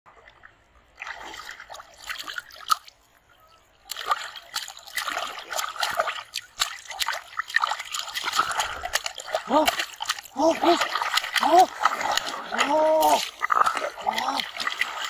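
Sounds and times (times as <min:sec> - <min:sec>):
fish splashing in water: 0:03.8 - 0:15.0.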